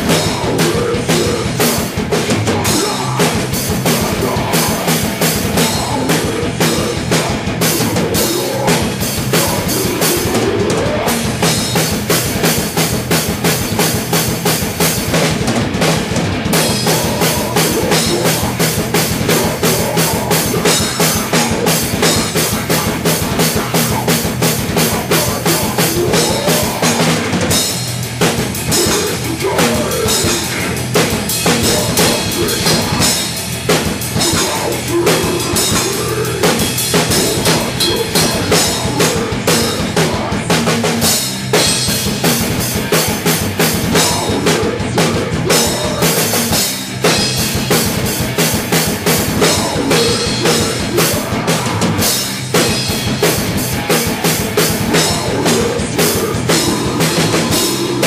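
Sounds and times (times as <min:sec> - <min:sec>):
fast drum kit beats: 0:00.0 - 0:58.0
heavy metal band playing: 0:00.0 - 0:58.0
shouted vocals: 0:02.2 - 0:11.2, 0:16.8 - 0:27.4, 0:28.7 - 0:30.8, 0:31.4 - 0:33.3, 0:34.2 - 0:40.6, 0:49.3 - 0:52.1, 0:54.8 - 0:58.0.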